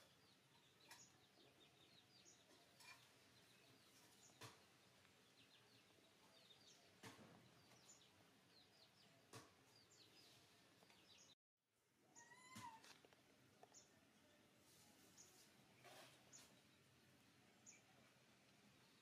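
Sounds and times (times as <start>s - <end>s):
faint bird chirps: 12.1s - 12.8s.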